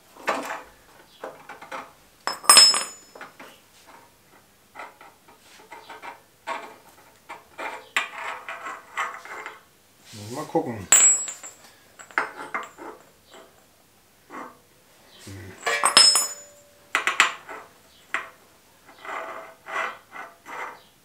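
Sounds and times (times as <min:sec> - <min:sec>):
metal exhaust pipe clinking: 0:10.9 - 0:12.8, 0:15.6 - 0:17.3
loud ringing metal clank: 0:15.6 - 0:16.8.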